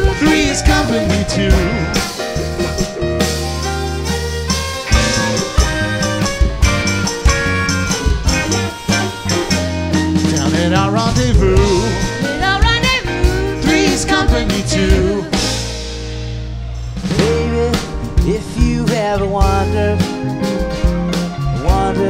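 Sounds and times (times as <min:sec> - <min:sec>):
wavering melody line: 0:00.0 - 0:15.5
live band playing: 0:00.0 - 0:22.0.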